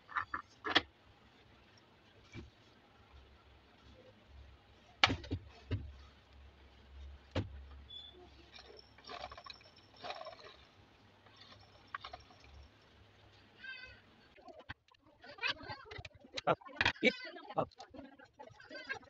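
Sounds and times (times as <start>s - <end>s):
parts scraping and rattling: 6.9s - 13.5s.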